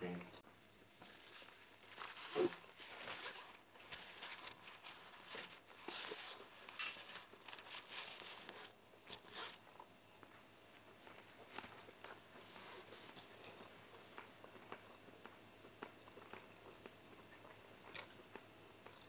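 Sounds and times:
people chewing: 0.8 - 19.0
paper napkin rustling: 0.9 - 9.6.

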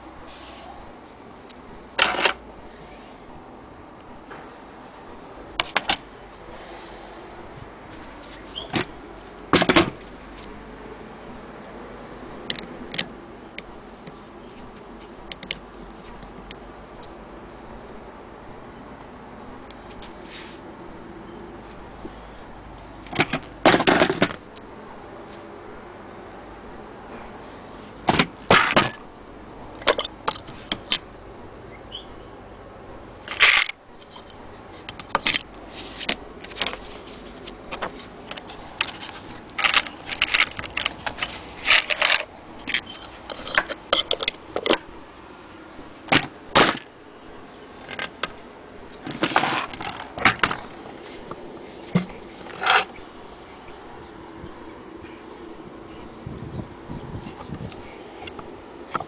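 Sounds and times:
clicks and knocks on metal parts: 33.3 - 35.5.

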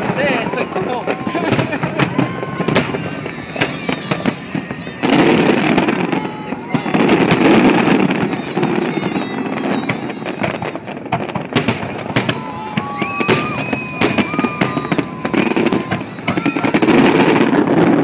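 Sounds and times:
crowd noise rumble: 0.0 - 18.0
fireworks bangs and crackling: 0.0 - 18.0
high whistle-like tone: 12.9 - 15.1.

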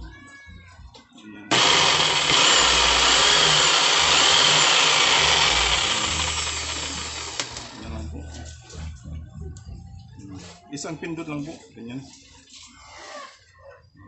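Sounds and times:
jigsaw motor whine: 1.5 - 7.9.

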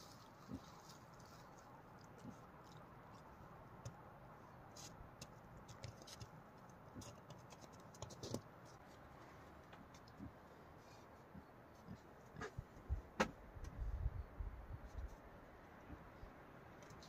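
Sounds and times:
low steady hiss: 0.0 - 7.3
handling scratches and clicks: 4.7 - 9.0, 16.6 - 17.0.

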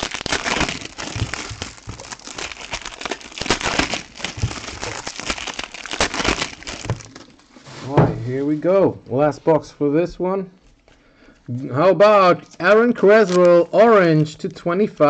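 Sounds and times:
foil wrappers crinkling: 0.0 - 7.5, 12.4 - 15.0.

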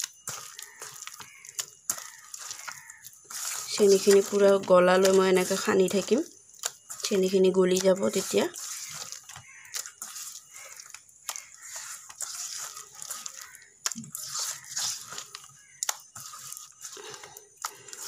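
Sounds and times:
hand kneading sticky dough: 0.0 - 18.0.

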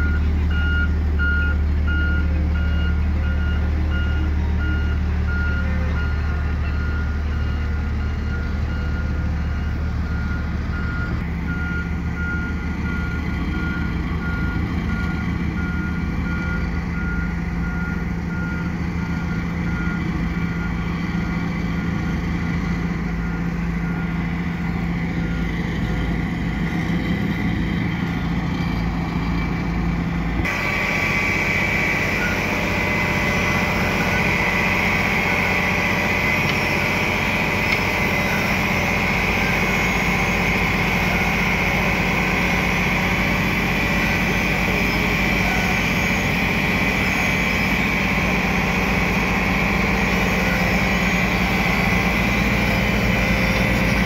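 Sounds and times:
reversing alarm beeping: 0.0 - 28.2, 30.4 - 54.0
diesel engines of rollers: 0.0 - 54.0
engine with high whine: 0.0 - 54.0.

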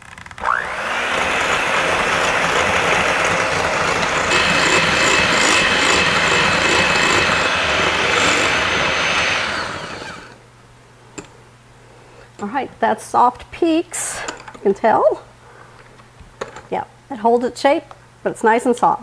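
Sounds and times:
electric hand mixer whipping cream: 0.4 - 10.4
steady high whine: 0.4 - 10.4.

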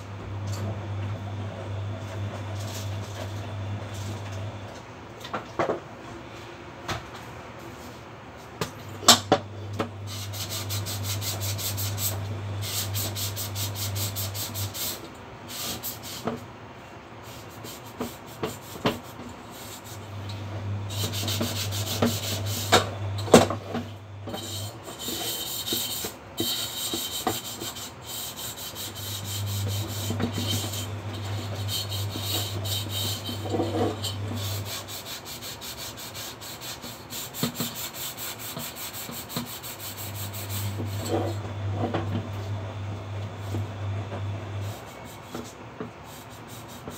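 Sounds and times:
scouring pad scrubbing saucepan: 10.1 - 14.9, 20.9 - 22.8, 24.3 - 41.4.

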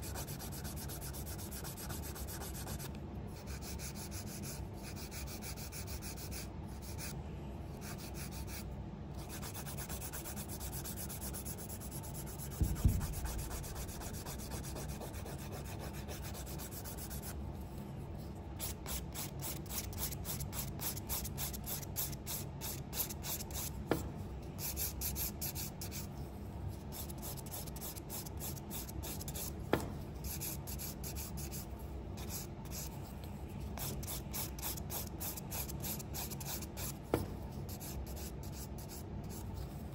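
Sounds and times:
nail file rubbing on acrylic nail: 0.0 - 7.1, 7.8 - 8.6, 9.2 - 17.4, 18.6 - 23.7, 26.8 - 29.5, 30.2 - 33.0, 33.7 - 37.0, 37.7 - 39.5
thump: 12.6 - 13.2, 29.7 - 30.0.

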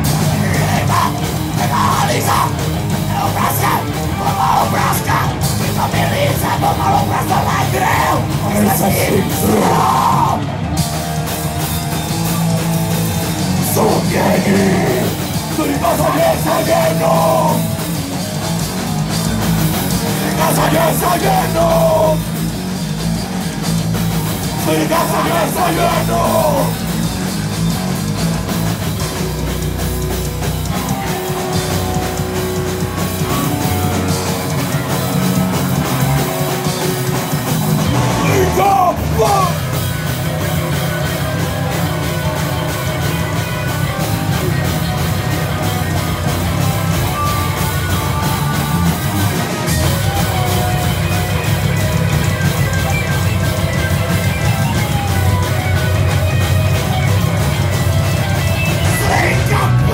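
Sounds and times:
singer shouting vocals: 0.0 - 10.6, 13.5 - 17.8, 20.0 - 22.4, 24.4 - 26.9, 37.9 - 39.8, 58.6 - 59.9
bass guitar: 0.0 - 59.9
distorted electric guitars: 0.0 - 59.9
drum kit: 0.0 - 59.9.

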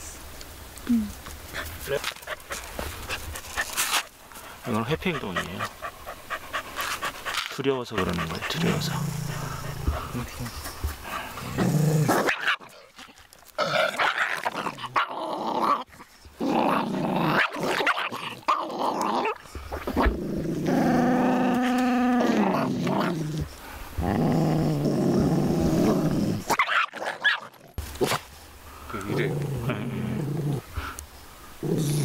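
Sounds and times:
small dog growling and snarling: 4.7 - 10.5, 11.1 - 28.2, 28.9 - 31.0, 31.6 - 32.0.

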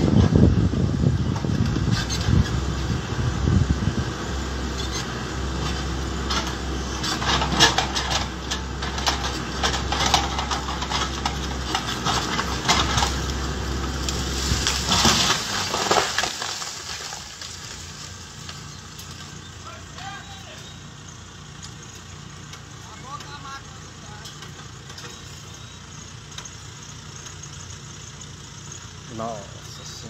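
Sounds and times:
backhoe engine running: 0.0 - 30.0
tree trunk cracking and snapping: 7.4 - 19.4.

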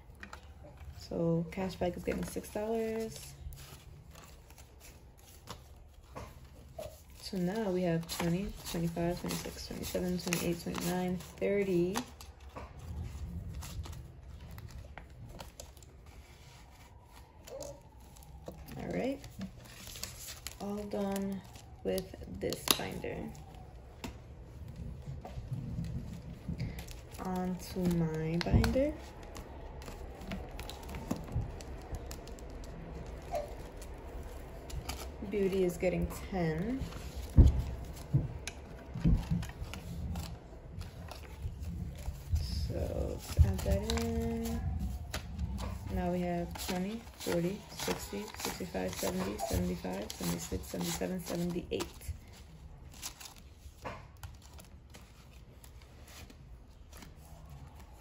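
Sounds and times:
plastic pouches clicking and rustling: 0.0 - 25.4, 26.0 - 58.0.

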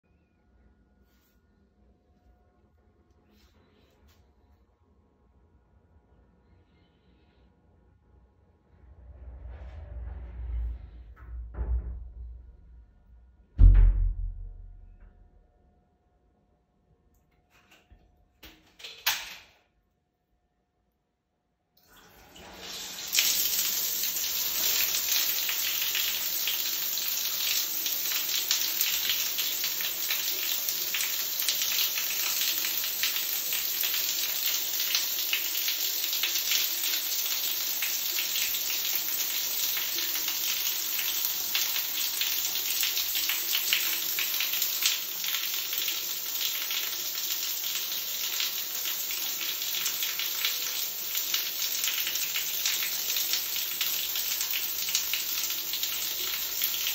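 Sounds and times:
water spraying on tiled floor: 21.9 - 56.9.

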